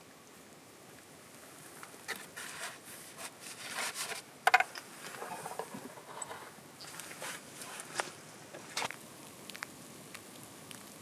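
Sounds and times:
paper rustling and scraping: 0:02.1 - 0:09.0.

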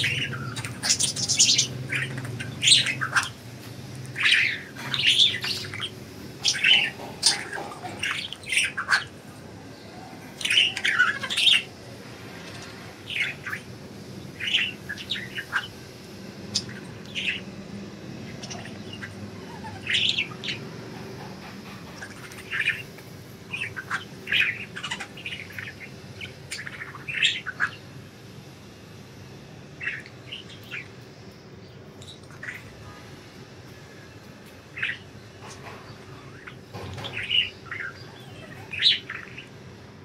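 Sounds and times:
budgerigars chirping: 0:00.0 - 0:03.5, 0:04.1 - 0:09.2, 0:10.4 - 0:11.8, 0:12.5 - 0:13.7, 0:14.3 - 0:17.5, 0:18.2 - 0:21.2, 0:21.9 - 0:22.9, 0:23.5 - 0:27.8, 0:34.7 - 0:39.6.

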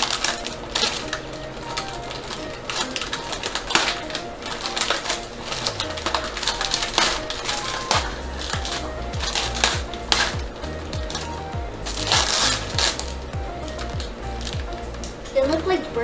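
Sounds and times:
plastic wrapper crinkling: 0:00.0 - 0:15.7.

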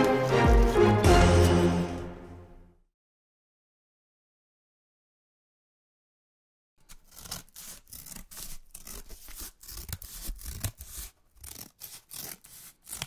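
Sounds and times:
scratchy rubbing and rustling: 0:06.8 - 0:13.0.

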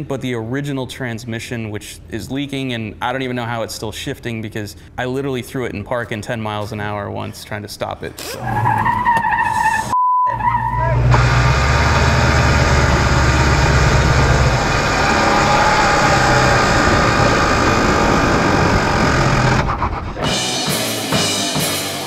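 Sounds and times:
engine running hard: 0:10.8 - 0:20.6
heavy low rumble: 0:10.9 - 0:20.6.

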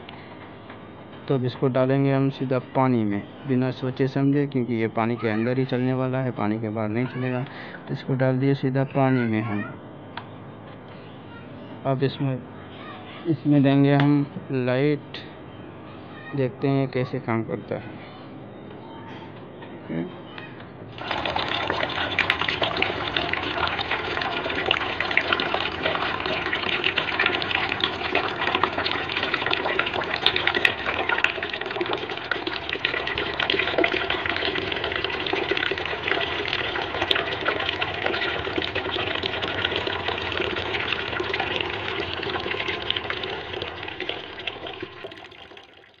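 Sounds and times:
water pouring into a basin: 0:21.0 - 0:46.0.

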